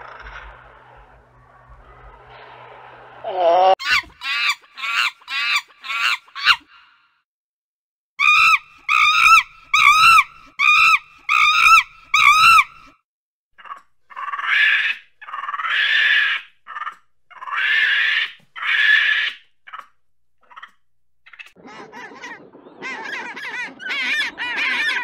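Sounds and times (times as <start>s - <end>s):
gibbon wails rising in pitch: 21.6s - 25.0s.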